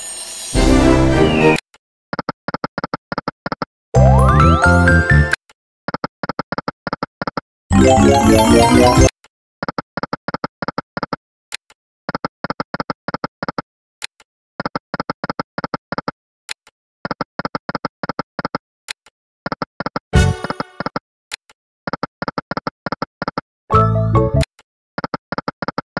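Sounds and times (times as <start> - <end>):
game music burst: 0.5 - 1.6, 7.7 - 9.1.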